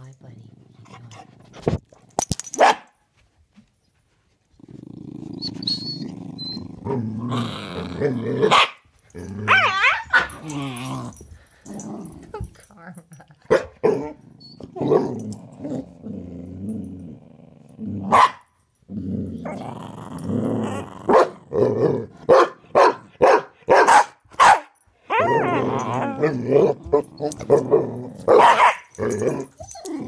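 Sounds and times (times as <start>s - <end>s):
dog barking: 2.6s - 2.9s, 8.4s - 8.8s, 18.1s - 18.4s, 21.1s - 21.4s, 22.3s - 24.8s, 28.3s - 28.9s
dog play-growling: 4.4s - 13.0s, 13.8s - 18.2s, 18.9s - 22.3s, 25.2s - 30.0s.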